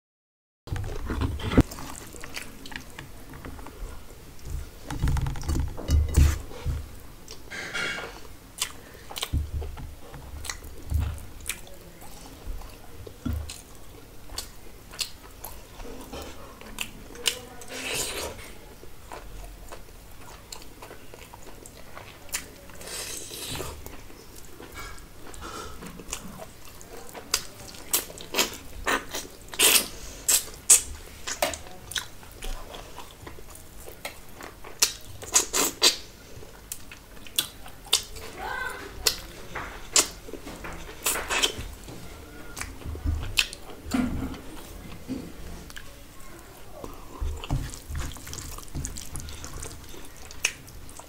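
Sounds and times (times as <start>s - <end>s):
wet squishing of food by hand: 0.8s - 51.0s
chewing and lip-smacking: 8.6s - 9.4s, 11.4s - 18.4s, 19.0s - 38.3s, 42.6s - 45.0s, 46.8s - 51.0s.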